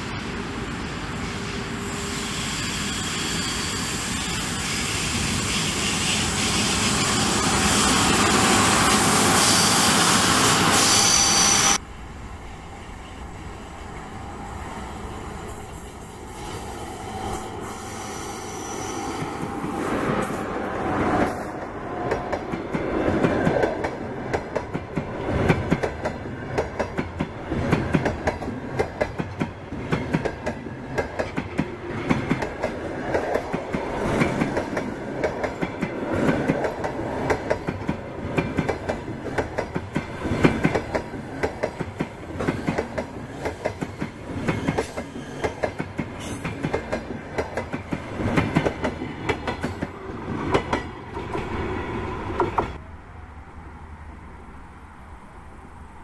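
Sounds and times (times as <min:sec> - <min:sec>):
electric locomotive approaching: 0:00.0 - 0:56.0
train coaches rattling: 0:18.5 - 0:52.8.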